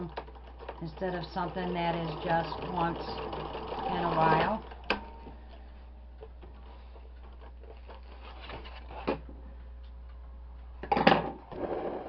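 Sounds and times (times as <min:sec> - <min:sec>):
steady low hum: 0:00.1 - 0:12.0.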